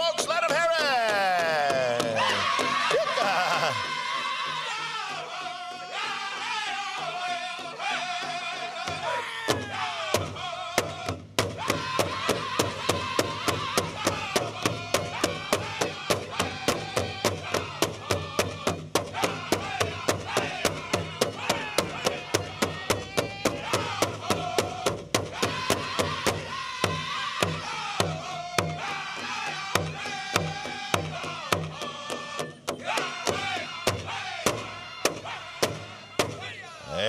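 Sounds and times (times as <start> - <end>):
big drum fast steady beat: 0.0 - 36.5
high voices singing: 0.0 - 37.0.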